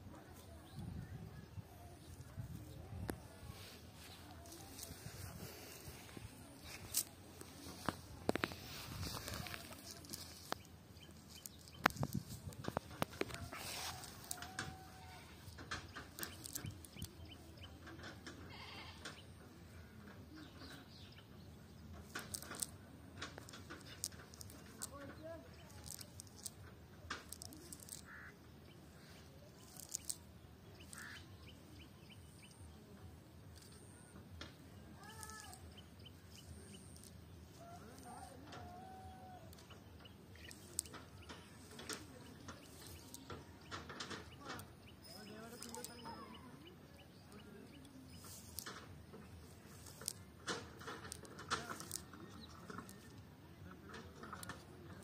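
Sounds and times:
birds chirping: 0.0s - 55.0s
net rustling and clicking on grass: 1.8s - 18.0s, 22.0s - 28.3s, 29.0s - 31.4s, 33.5s - 53.2s
net rustling: 3.5s - 15.6s.

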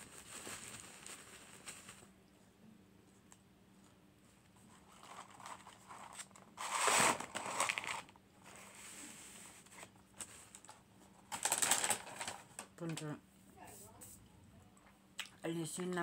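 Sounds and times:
paper carton crinkling: 0.0s - 2.1s, 4.6s - 12.7s.

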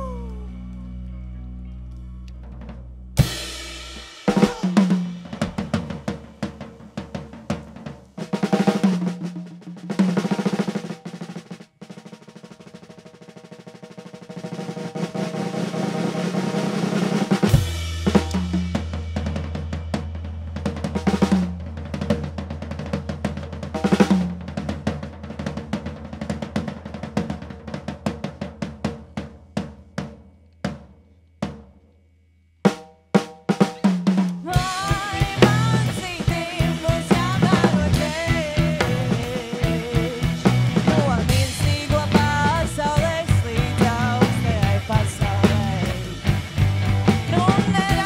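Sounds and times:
held low bass note: 0.0s - 3.2s
rock band playing: 0.0s - 7.7s, 15.0s - 24.3s, 33.7s - 48.0s
drum rolls and fills: 2.6s - 31.6s, 32.7s - 48.0s.

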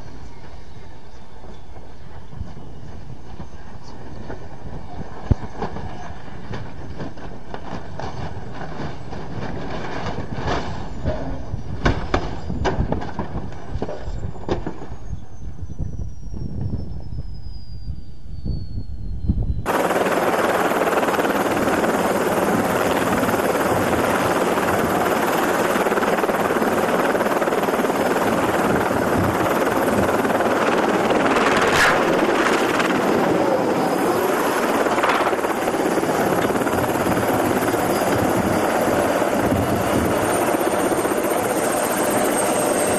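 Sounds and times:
light helicopter rotor and engine: 0.0s - 42.9s
helicopter running: 19.6s - 42.9s.

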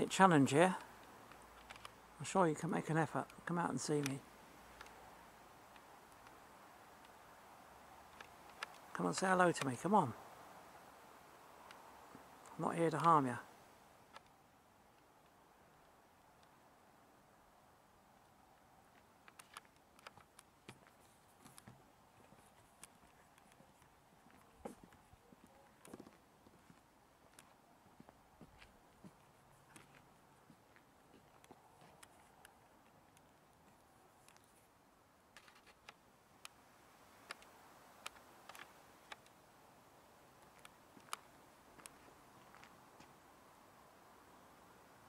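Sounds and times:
faint hiss: 0.0s - 45.0s
faint sharp clicks: 0.8s - 2.0s, 4.0s - 5.0s, 5.7s - 7.2s, 8.0s - 9.0s, 11.6s - 13.2s, 14.1s - 14.4s, 18.6s - 26.2s, 27.3s - 27.6s, 29.1s - 34.7s, 35.3s - 39.5s, 40.3s - 43.2s.

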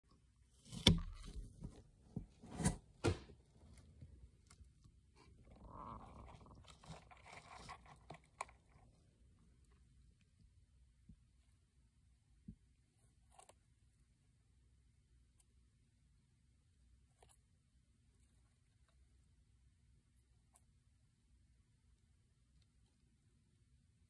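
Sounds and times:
hamster cracking seeds: 4.4s - 10.4s, 13.1s - 13.9s.

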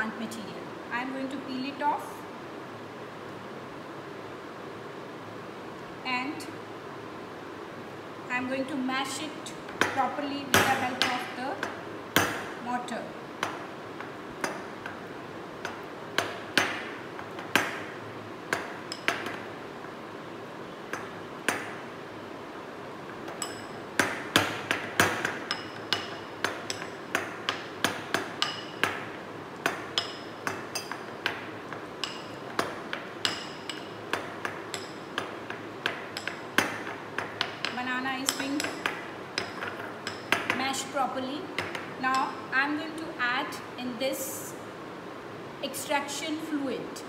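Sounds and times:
pestle knocking in ceramic mortar: 23.2s - 40.7s.

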